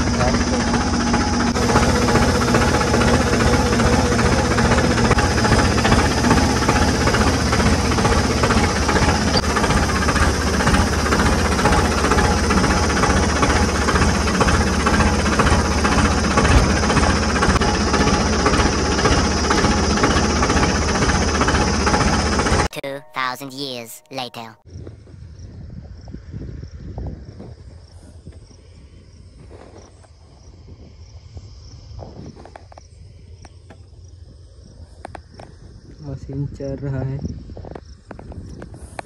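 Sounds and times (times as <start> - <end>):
steady tone in engine noise: 0.0 - 23.1
tractor diesel engine running: 0.0 - 24.5.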